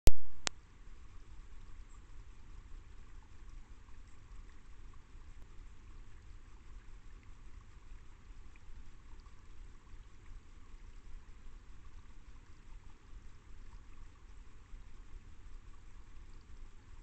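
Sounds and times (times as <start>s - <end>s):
low rumble: 0.1s - 0.6s
stream trickling: 0.4s - 17.0s.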